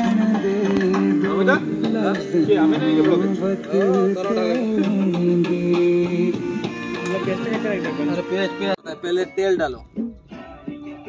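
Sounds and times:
steady drum beat: 0:00.0 - 0:08.3
music with held melody: 0:00.0 - 0:11.0.

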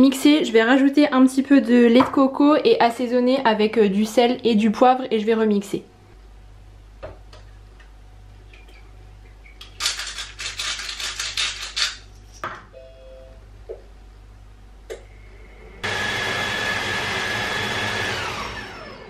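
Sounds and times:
pepper mill grinding: 0:09.6 - 0:12.4.

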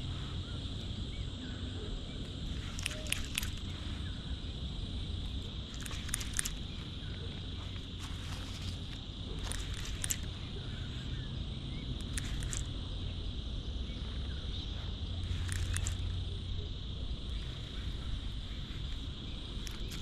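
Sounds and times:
insects chorus: 0:00.0 - 0:20.0
short clicks: 0:02.6 - 0:03.7.

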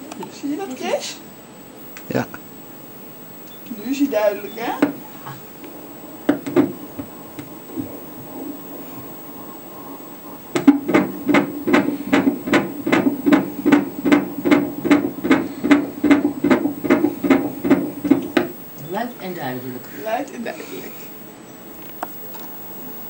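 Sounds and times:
doppler fetal heartbeat: 0:03.6 - 0:19.2.

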